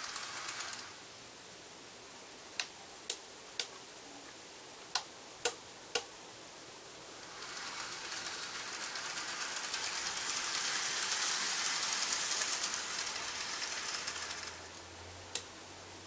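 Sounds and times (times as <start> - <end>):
model locomotive motor whirring: 0.0 - 1.0, 7.2 - 14.8
model train wheels rattling: 0.0 - 1.0, 7.2 - 14.8.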